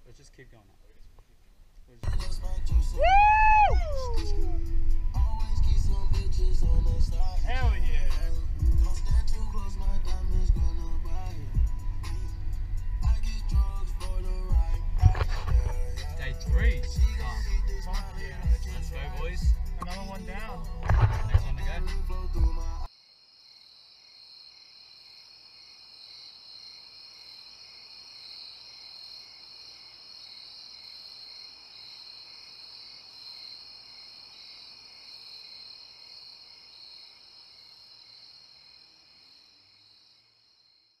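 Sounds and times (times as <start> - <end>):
crickets chirping: 2.0 - 21.2, 21.8 - 41.0
music: 2.0 - 22.9.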